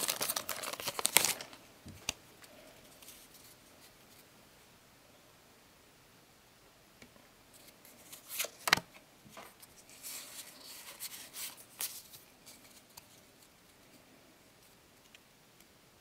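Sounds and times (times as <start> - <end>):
cards rustling and clicking: 0.0 - 3.6.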